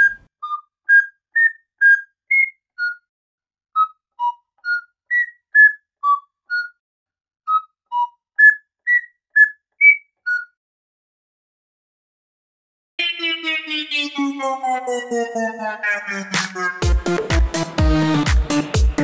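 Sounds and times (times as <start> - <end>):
whistled tune: 0.0 - 3.1, 3.8 - 6.8, 7.5 - 10.6.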